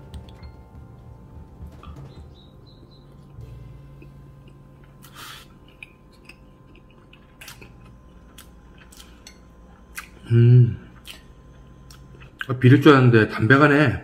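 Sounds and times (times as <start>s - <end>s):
person chewing rice: 4.0s - 10.3s, 10.9s - 12.5s.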